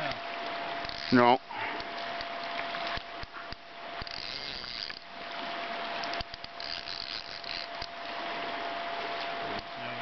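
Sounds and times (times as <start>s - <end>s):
fishing reel ratcheting: 0.8s - 1.4s, 4.0s - 5.0s, 6.0s - 7.9s.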